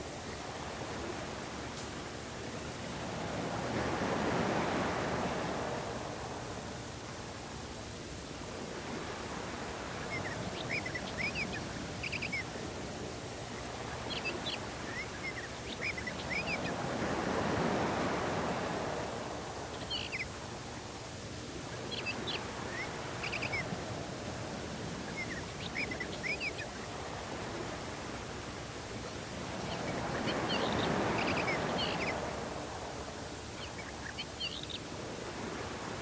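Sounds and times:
tape hiss: 0.0 - 36.0
small birds chirping: 10.0 - 12.7, 13.3 - 16.9, 19.6 - 20.4, 21.7 - 23.8, 25.0 - 27.0, 29.0 - 32.4, 33.4 - 34.9.

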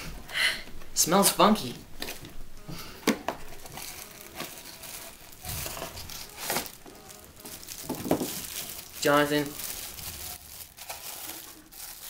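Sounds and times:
plastic wrapping crinkling and tearing: 3.3 - 12.0.

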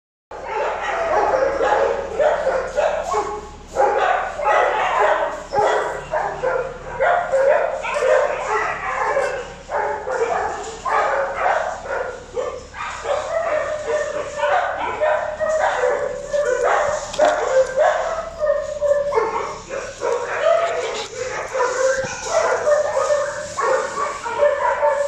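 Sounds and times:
dog barking: 0.3 - 25.0.

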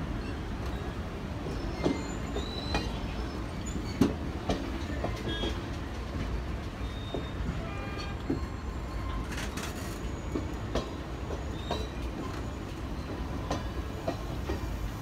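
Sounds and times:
steel wheels rumbling on rails: 0.0 - 15.0
high wheel squeals: 0.2 - 4.2, 6.7 - 14.1
clanks at rail joints: 0.2 - 14.7.

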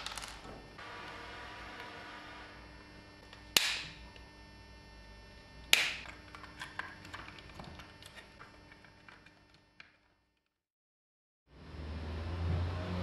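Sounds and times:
faint steady hum: 0.0 - 10.2.

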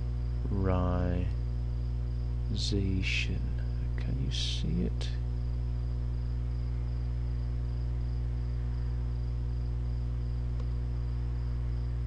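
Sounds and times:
electrical mains hum: 0.0 - 12.0
faint high-pitched whine: 0.0 - 12.0
faint click: 10.5 - 10.8.

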